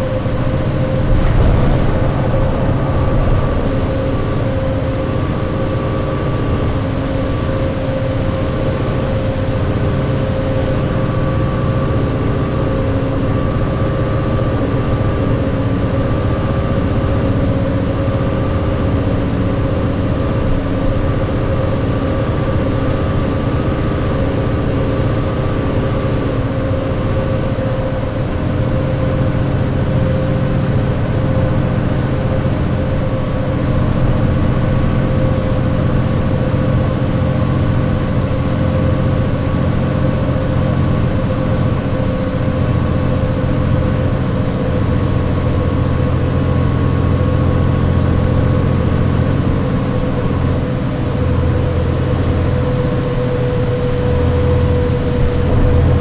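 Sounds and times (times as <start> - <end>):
gear whine: 0.0 - 8.5
road noise: 0.0 - 9.8
bus diesel engine drone: 0.0 - 56.0.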